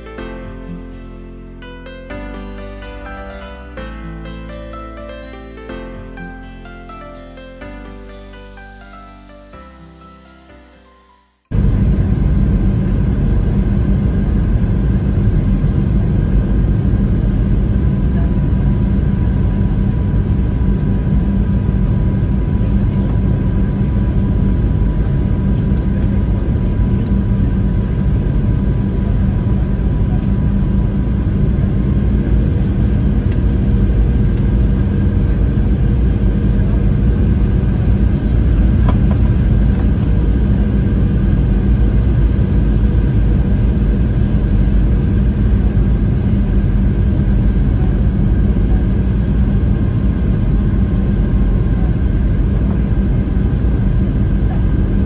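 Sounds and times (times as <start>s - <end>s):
faint high whine: 8.6s - 55.0s
airplane cabin engine rumble: 11.5s - 55.0s.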